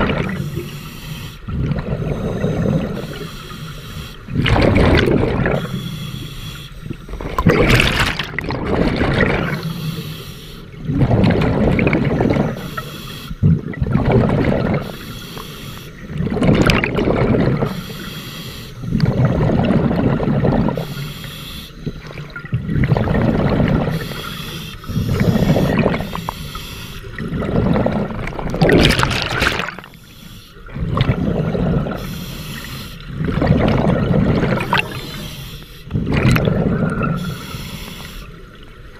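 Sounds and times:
diver breathing through regulator: 0.1s - 8.1s, 9.3s - 11.2s, 17.5s - 19.9s, 20.7s - 22.2s, 23.3s - 38.4s.

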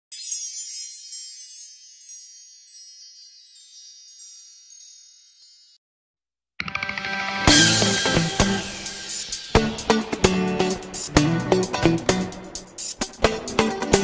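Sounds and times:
wind chimes tinkling: 0.1s - 5.8s
music with guitar and drums: 6.6s - 14.0s.

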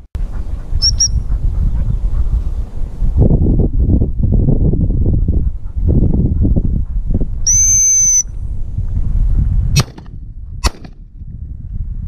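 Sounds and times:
wind on microphone: 0.0s - 12.0s
dog whistle blast: 0.8s - 1.2s, 7.4s - 8.3s
shotgun shots: 9.8s - 11.0s.

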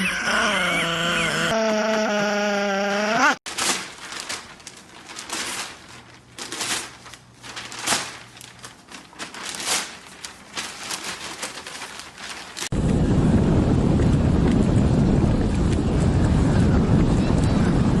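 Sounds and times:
newspaper rustling and crinkling: 3.5s - 12.8s.

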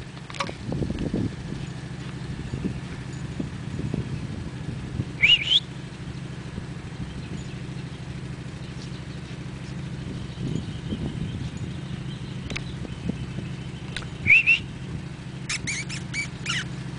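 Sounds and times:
low engine hum: 0.0s - 16.9s
high-pitched squeal: 15.4s - 16.7s.

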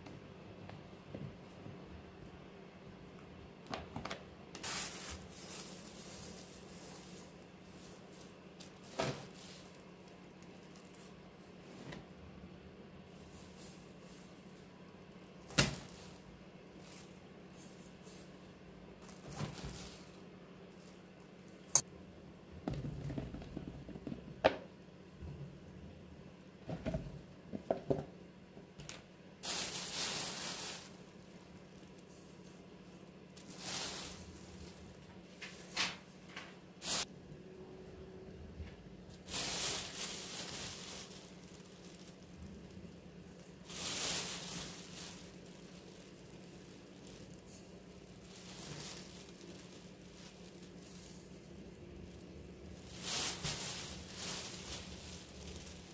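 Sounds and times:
faint low hum: 0.0s - 55.9s
sugar sprinkling hiss: 4.6s - 11.3s, 29.4s - 35.7s, 39.2s - 55.9s.

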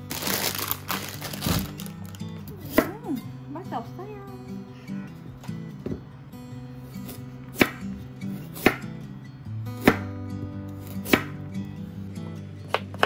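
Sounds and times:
knife chopping on wooden board: 7.0s - 7.8s, 8.6s - 8.8s, 9.8s - 10.1s, 11.0s - 11.4s.

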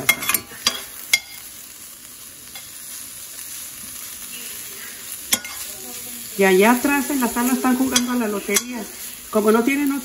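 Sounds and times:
bacon sizzling in frying pan: 0.0s - 10.0s.

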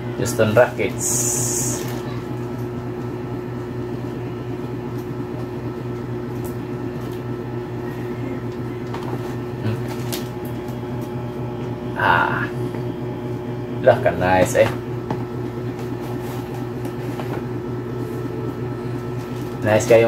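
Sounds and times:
steady electric hum: 0.0s - 20.0s
packaging rustling in a box: 9.0s - 10.4s.

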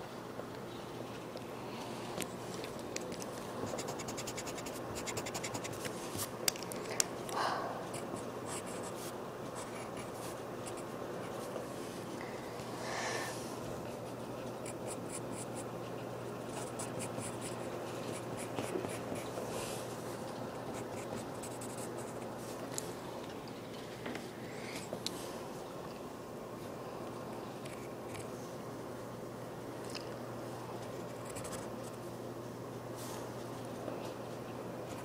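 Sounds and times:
pencil scratching on paper: 3.7s - 5.8s, 20.8s - 22.3s.

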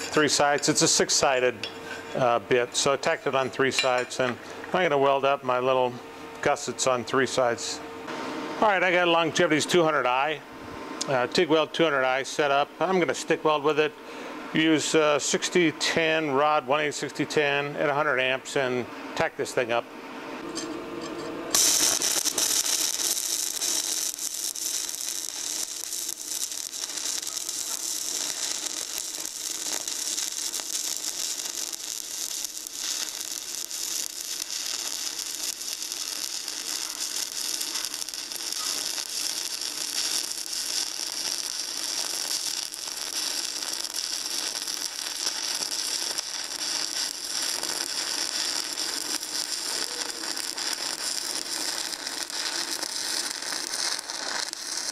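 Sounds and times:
welding arc crackling: 0.0s - 1.5s, 21.5s - 54.9s.

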